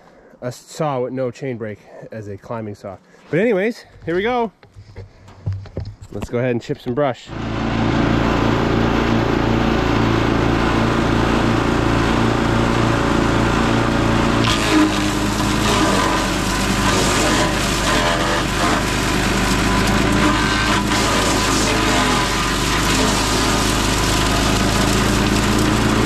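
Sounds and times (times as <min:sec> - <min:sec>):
branches grinding in chipper: 0:07.3 - 0:26.0
small gasoline engine running: 0:07.3 - 0:26.0.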